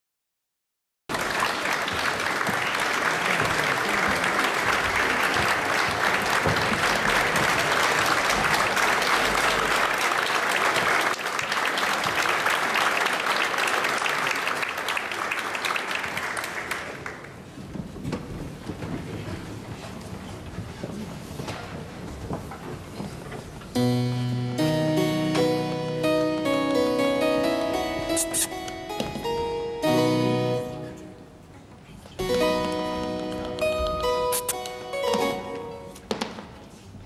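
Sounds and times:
audience applauding: 1.1s - 17.5s.

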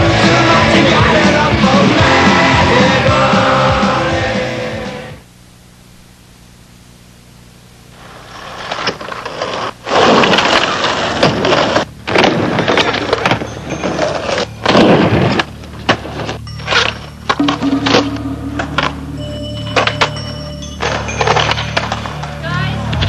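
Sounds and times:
skateboard wheels rolling on concrete: 7.9s - 17.6s.

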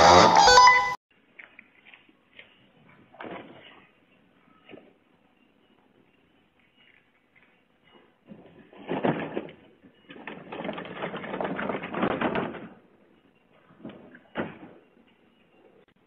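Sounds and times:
wheelie bin rolling: 8.3s - 12.9s
plastic bin clattering: 8.7s - 12.8s.

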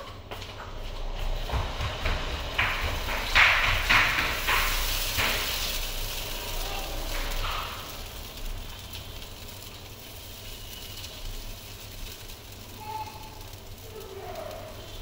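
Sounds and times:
batter sizzling on pan: 1.0s - 15.0s.

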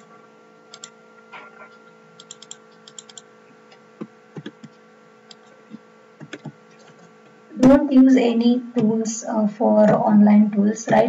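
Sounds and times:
faint electrical hum: 0.0s - 11.0s
keyboard and mouse clicks: 0.7s - 1.0s, 2.2s - 7.1s.

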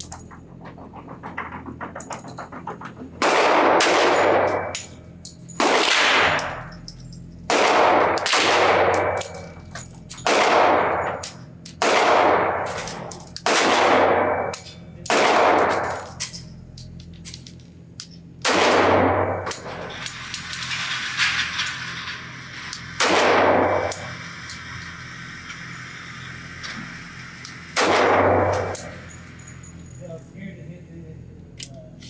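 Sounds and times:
pistol shots echoing indoors: 3.2s - 4.9s, 5.6s - 6.7s, 7.5s - 9.5s, 10.2s - 16.1s, 18.4s - 19.7s, 23.0s - 24.2s, 27.8s - 29.0s.

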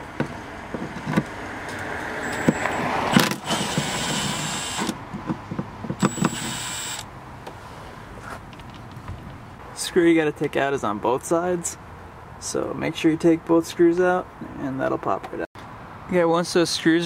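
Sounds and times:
handling clicks and knocks: 0.1s - 3.4s, 5.0s - 6.4s
cordless drill whining: 2.2s - 5.0s, 6.0s - 7.0s.

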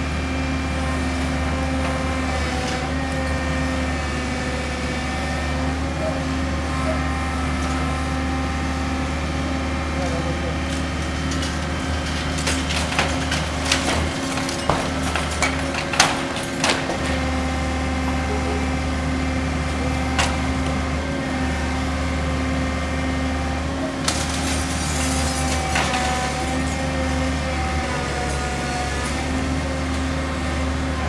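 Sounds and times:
excavator diesel engine running: 0.0s - 31.0s
wood and debris cracking: 10.6s - 17.7s, 23.8s - 30.1s.

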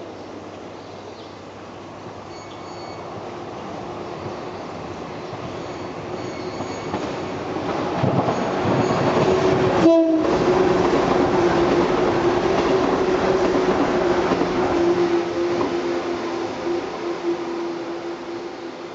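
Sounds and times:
train wheel-on-rail noise: 0.0s - 18.9s
train horn long note: 9.8s - 10.6s.

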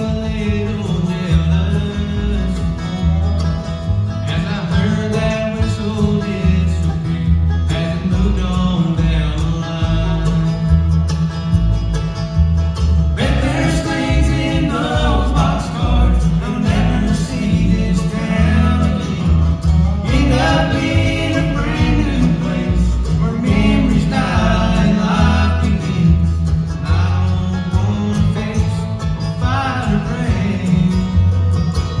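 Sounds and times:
bluegrass band playing: 0.0s - 32.0s
upright bass walking: 0.0s - 32.0s
person singing: 13.2s - 31.2s.

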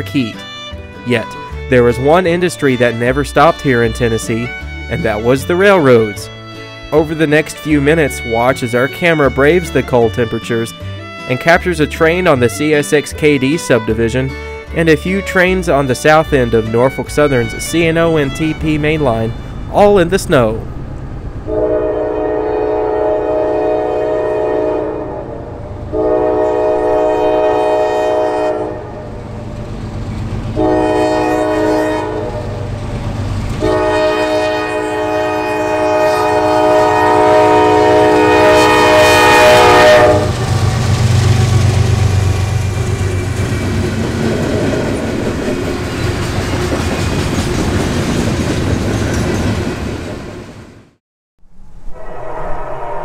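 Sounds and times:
locomotive engine rumble: 0.0s - 50.6s
train air horn blasts: 21.5s - 29.2s, 30.6s - 32.7s, 33.6s - 42.4s, 51.8s - 53.0s
train wheels clattering on rails: 40.3s - 50.4s.

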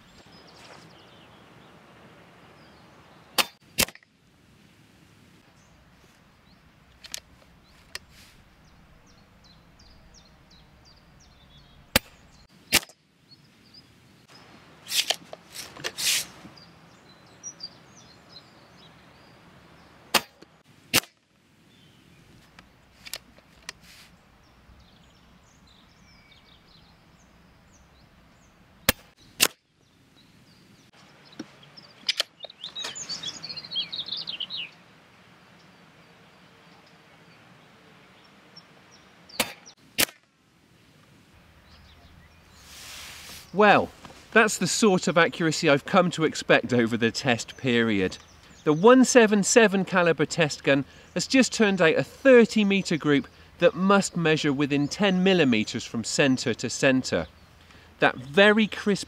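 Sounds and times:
rustling: 0.0s - 1.1s, 6.9s - 8.6s, 14.4s - 16.6s, 22.2s - 24.3s, 42.4s - 44.4s
birds chirping: 0.0s - 3.7s, 5.4s - 20.8s, 21.6s - 40.0s, 40.7s - 59.0s
air rifle shots: 3.4s - 4.0s, 11.9s - 12.9s, 20.1s - 21.2s, 28.9s - 29.6s, 39.4s - 40.2s.

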